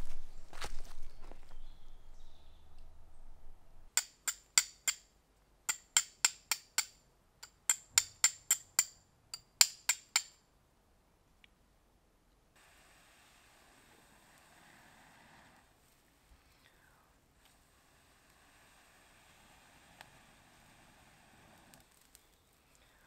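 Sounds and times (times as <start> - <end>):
steel striker clinking on flint: 3.9 - 5.1, 5.7 - 10.4.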